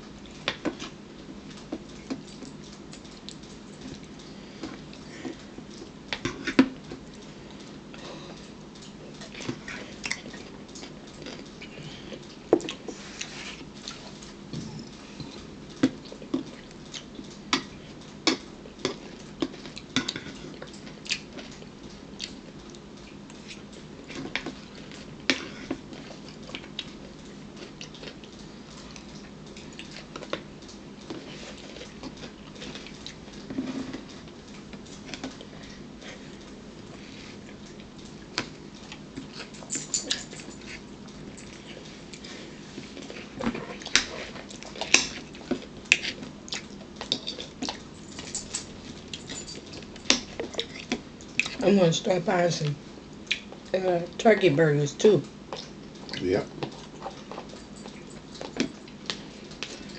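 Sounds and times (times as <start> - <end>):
wet chewing smacks: 53.1 - 53.8, 55.2 - 59.9.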